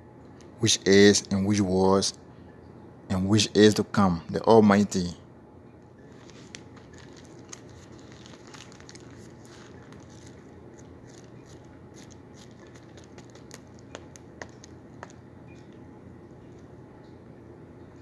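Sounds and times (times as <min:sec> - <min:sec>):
low room hum: 0:00.0 - 0:18.0
handling rustles and clicks: 0:06.0 - 0:15.8.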